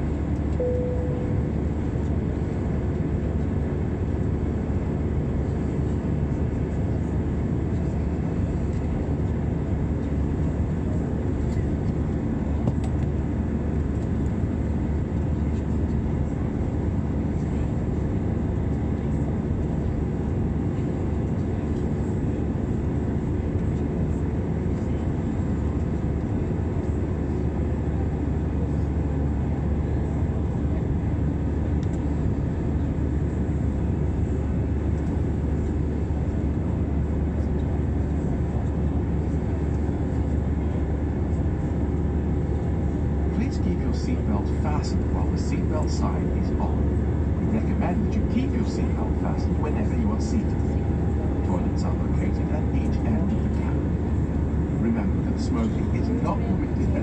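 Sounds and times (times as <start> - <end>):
jet airliner cabin drone: 0.0 - 57.0.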